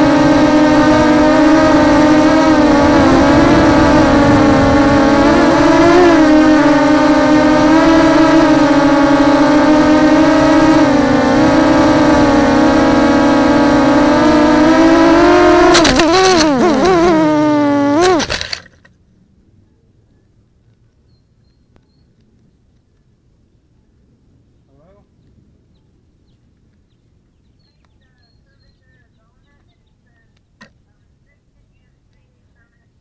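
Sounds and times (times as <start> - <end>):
quadcopter motors whining: 0.0 - 18.7.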